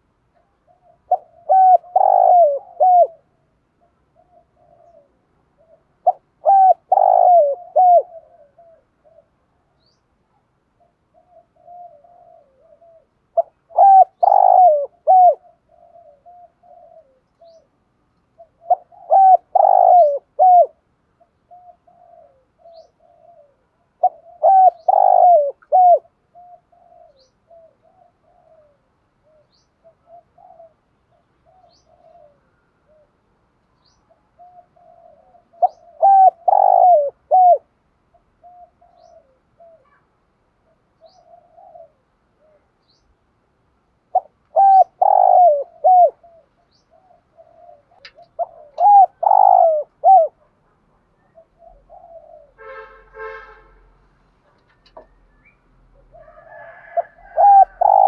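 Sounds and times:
dove cooing: 0.0 - 9.8, 10.7 - 33.3, 34.0 - 43.0, 44.0 - 53.3, 54.5 - 58.0.

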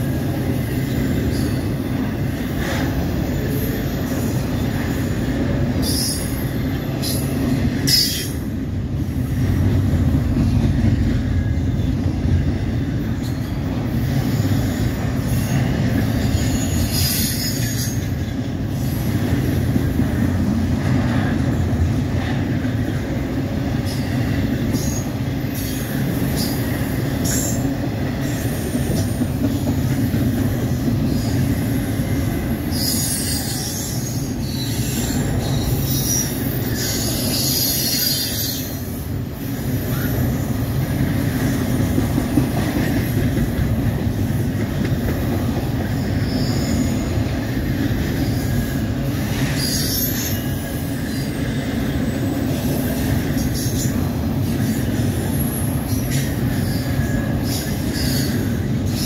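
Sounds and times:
rumble of steel wheels on rail: 0.0 - 59.0
high-pitched metallic squeals: 15.3 - 18.2, 32.7 - 38.9, 48.3 - 52.4.

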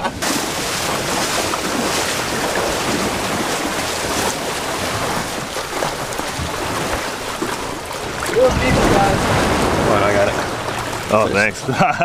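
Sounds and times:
wind on microphone: 0.0 - 11.2
seawater sloshing around hulls: 0.0 - 12.0.

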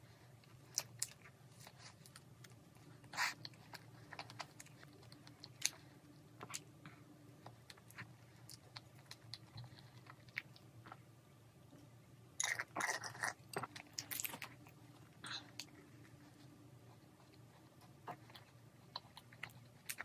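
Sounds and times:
pastry crackling: 0.0 - 11.1
soft chewing: 0.0 - 20.0.

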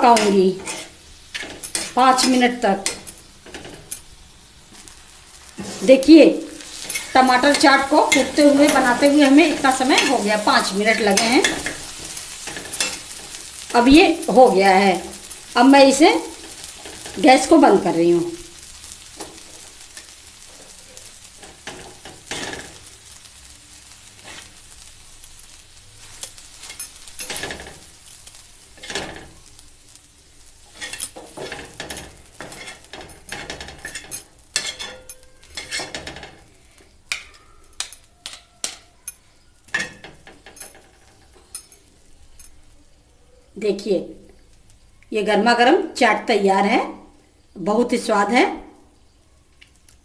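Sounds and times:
metal spatula scraping griddle: 0.0 - 37.9.

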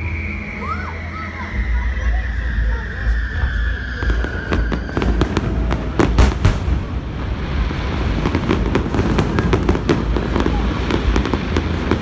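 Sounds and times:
high steady whistle: 0.0 - 5.4
low rumble: 2.6 - 12.0
fireworks crackling bangs: 3.3 - 12.0.

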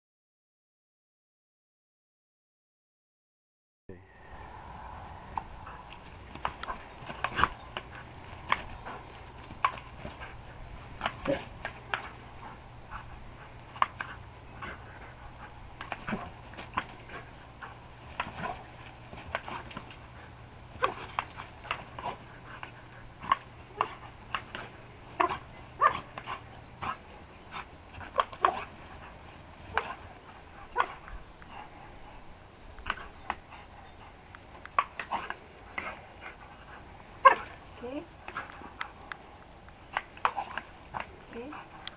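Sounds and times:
dog barking and yipping: 23.2 - 31.6, 37.2 - 37.6.

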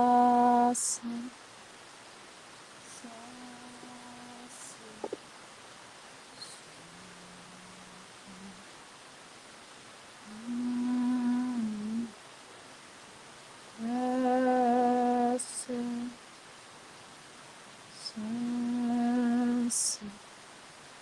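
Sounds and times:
woman humming low notes: 0.0 - 1.3, 2.9 - 5.2, 6.4 - 8.6, 10.2 - 12.2.

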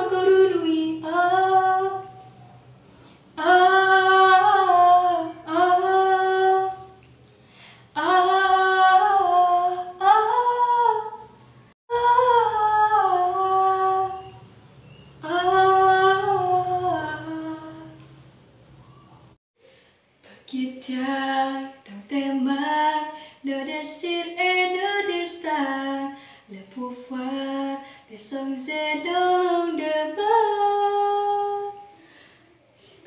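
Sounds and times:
girl singing wordless vocal: 0.0 - 2.4, 3.3 - 7.1, 7.8 - 18.2, 20.2 - 33.0
breaths: 2.8 - 3.4, 7.3 - 7.9, 18.8 - 20.4, 23.2 - 23.4, 26.2 - 26.5, 27.8 - 28.1, 31.8 - 32.8.

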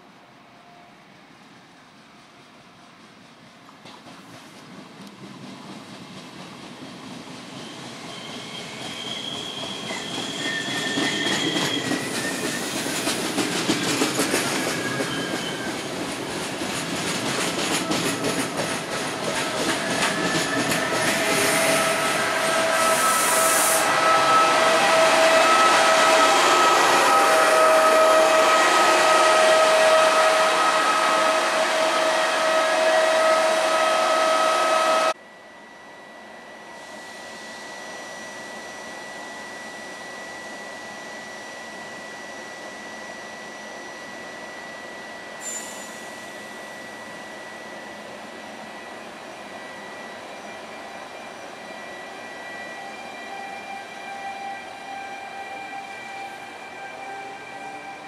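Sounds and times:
electric locomotive whining: 0.0 - 58.0
wheels rushing on rails: 2.1 - 35.2
locomotive humming: 2.4 - 58.0.

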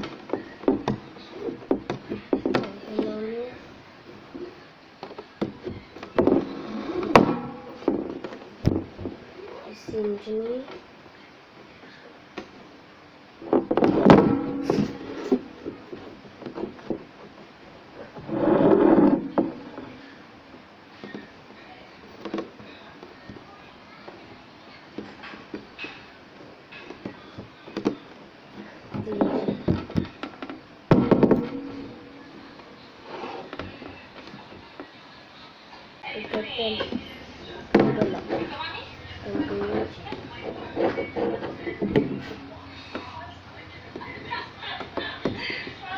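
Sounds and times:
cord knocking and rubbing: 4.3 - 9.2, 13.4 - 17.2, 18.0 - 19.9, 37.7 - 43.1.

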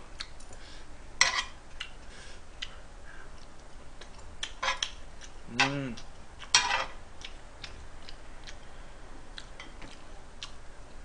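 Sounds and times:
meat ticking and popping: 2.6 - 8.6.

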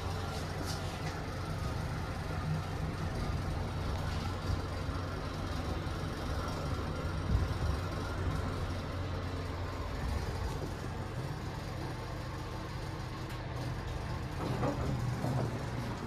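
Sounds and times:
elevator humming: 0.0 - 16.0
elevator doors sliding open: 9.4 - 16.0.

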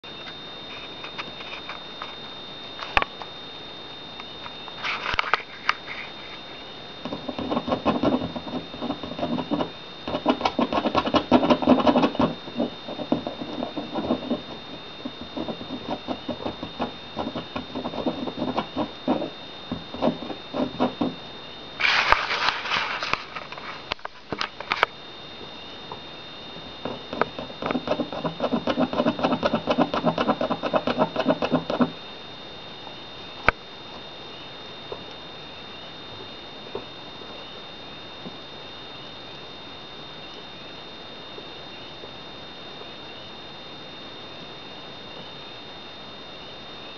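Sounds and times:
short rustling: 21.8 - 24.3.

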